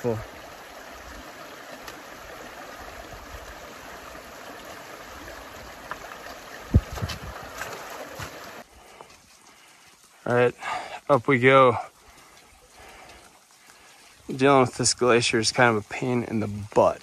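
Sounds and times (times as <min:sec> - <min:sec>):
stream rushing over gravel: 0:00.0 - 0:17.0
boots and poles striking rocks: 0:06.7 - 0:09.2.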